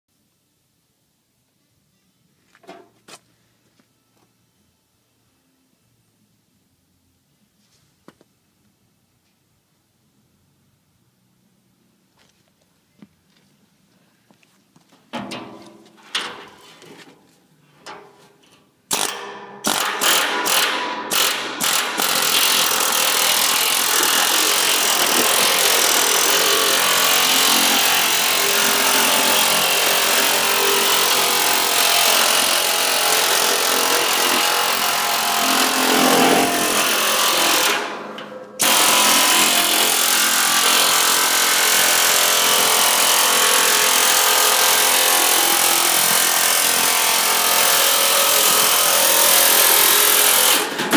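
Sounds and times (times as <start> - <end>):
air chisel hammering steel: 18.9 - 50.8.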